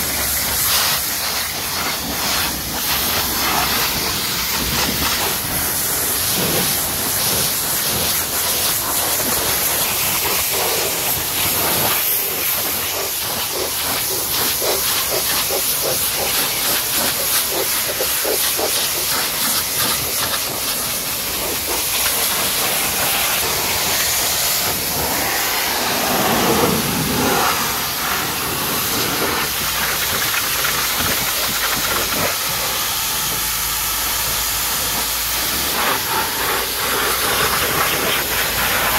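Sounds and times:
pressure washer spraying water: 0.0s - 38.9s.

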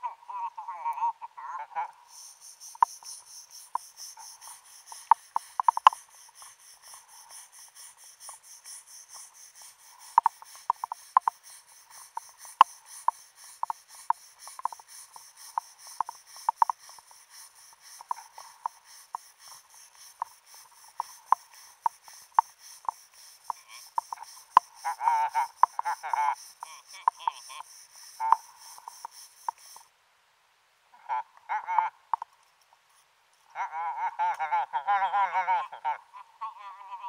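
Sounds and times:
faint steady hiss: 0.0s - 37.0s
wire brush scraping underwater: 2.1s - 29.8s.

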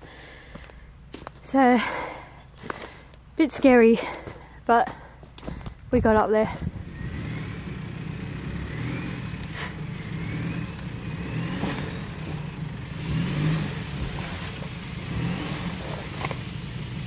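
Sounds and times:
vehicle engine revving under load: 6.6s - 17.0s
rising whine: 8.4s - 17.0s
hiss: 12.8s - 17.0s.

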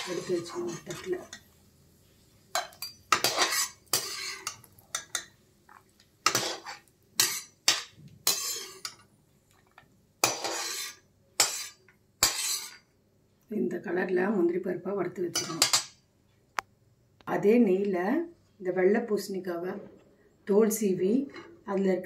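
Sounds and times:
metal skimmer scraping a pan: 0.0s - 1.4s, 2.8s - 5.2s, 6.2s - 9.0s, 10.2s - 12.8s.

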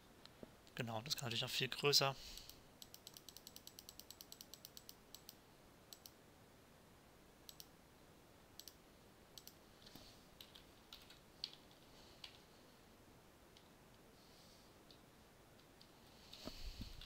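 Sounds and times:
faint room hiss: 0.0s - 17.0s
mouse and keyboard clicks: 2.4s - 6.2s.

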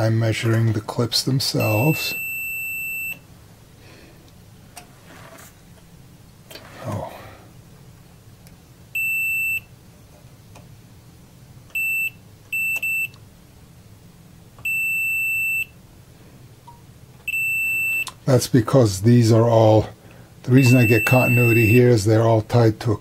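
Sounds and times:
multimeter continuity beeps: 1.6s - 3.3s, 8.9s - 9.8s, 11.7s - 13.2s, 14.6s - 15.8s, 16.7s - 18.2s, 20.5s - 22.0s.

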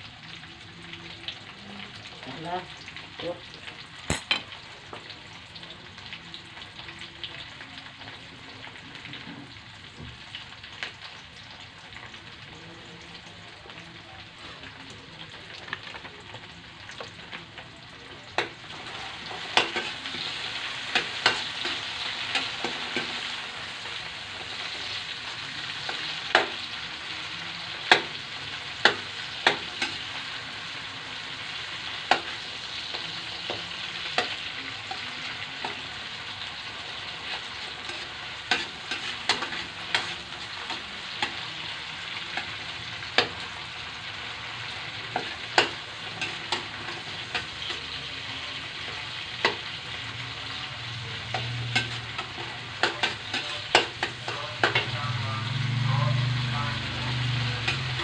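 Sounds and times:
food sizzling in hot oil: 0.0s - 58.0s.

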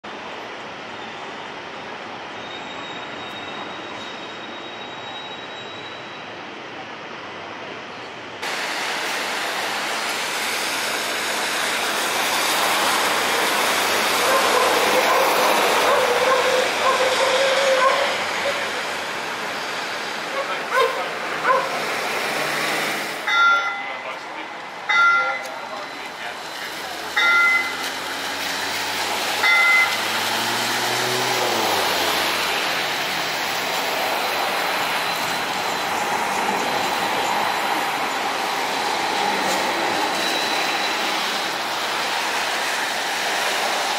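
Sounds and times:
rain hissing: 8.4s - 20.3s, 25.8s - 35.7s
car tyres on wet street: 8.4s - 43.9s
passing vehicle hum: 26.0s - 36.8s.

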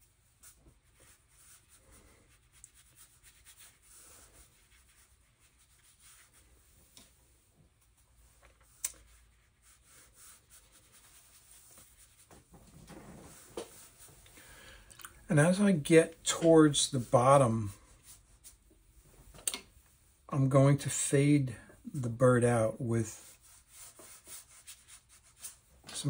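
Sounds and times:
brush scratching on paper: 0.0s - 7.4s, 8.2s - 14.3s, 15.4s - 18.7s, 23.1s - 26.0s.

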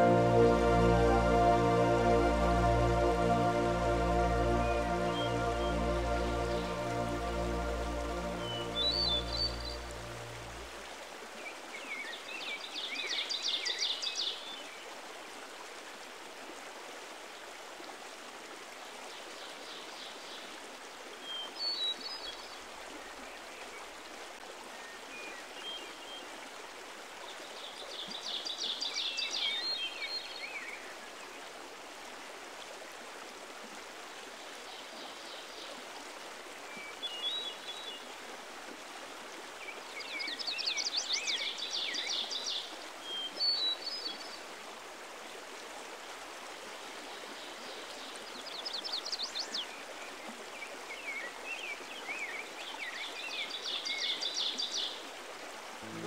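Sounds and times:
songbird singing: 0.0s - 10.7s
running water: 0.0s - 12.7s.

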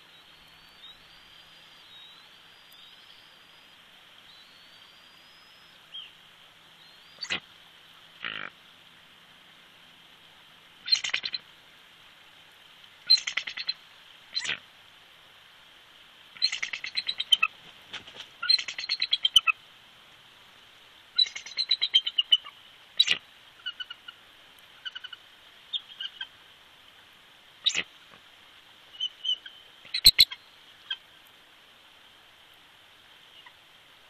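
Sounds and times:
eagle high chittering calls: 6.8s - 7.4s, 10.8s - 11.4s, 13.1s - 14.6s, 16.4s - 17.5s, 21.2s - 24.1s, 27.6s - 27.8s, 28.9s - 31.0s.

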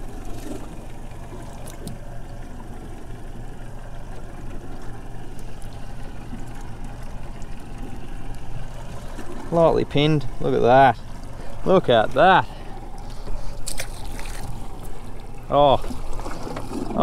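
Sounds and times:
low hum: 0.0s - 17.0s
water lapping against boat hull: 0.0s - 17.0s
faint clicks: 4.8s - 8.4s.

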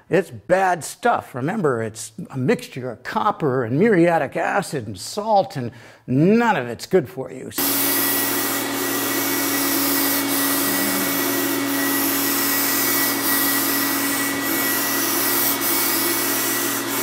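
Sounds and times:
air supply hum: 7.6s - 17.0s
spray gun hissing: 7.6s - 17.0s.

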